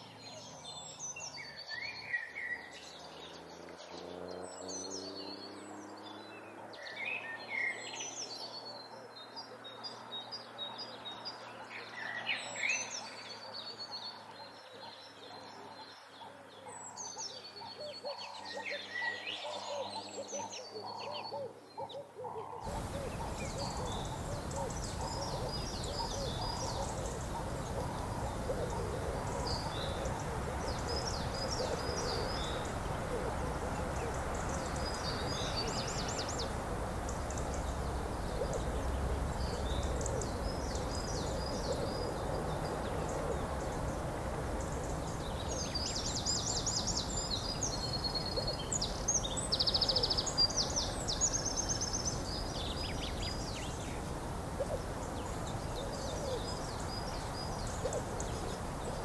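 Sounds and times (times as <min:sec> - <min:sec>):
birds chirping: 0:22.6 - 0:59.0
steady hiss: 0:22.7 - 0:59.0.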